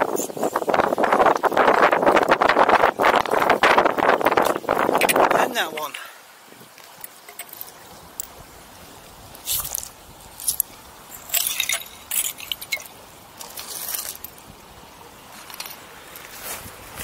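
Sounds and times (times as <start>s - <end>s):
pebbles and glass clinking: 7.0s - 8.3s, 9.5s - 14.4s.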